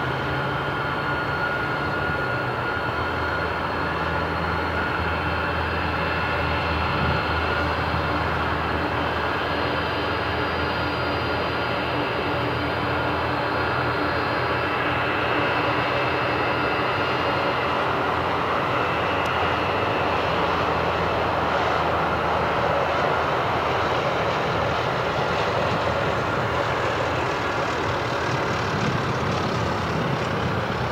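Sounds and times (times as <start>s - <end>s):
high jet whine: 0.0s - 30.9s
jet engine rumble: 0.0s - 30.9s.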